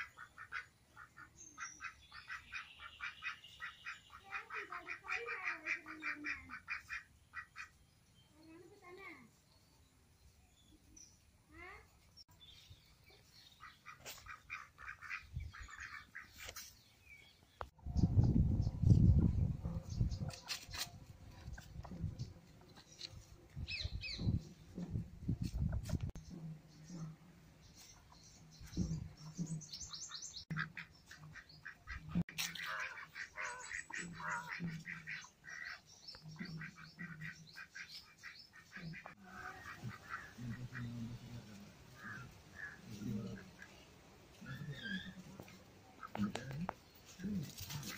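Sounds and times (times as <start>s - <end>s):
ducks quacking: 0.0s - 7.8s, 13.6s - 16.6s, 28.8s - 47.9s
bird chirps: 26.2s - 31.8s.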